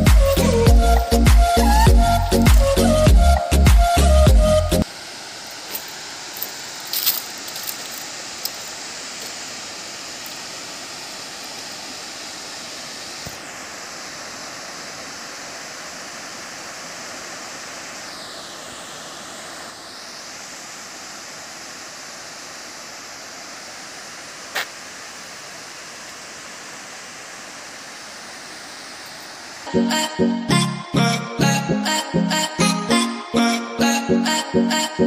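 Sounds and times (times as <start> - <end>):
water rushing through spillway: 4.8 - 29.7.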